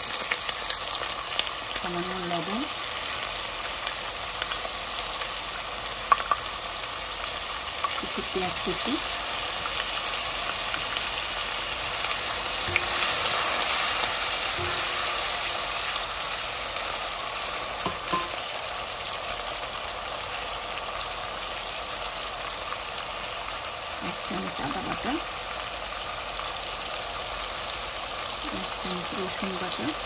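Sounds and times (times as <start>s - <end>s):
onions sizzling in hot oil: 0.0s - 30.0s
spatula knocking in pan: 12.6s - 13.3s, 14.6s - 15.2s, 17.8s - 18.5s.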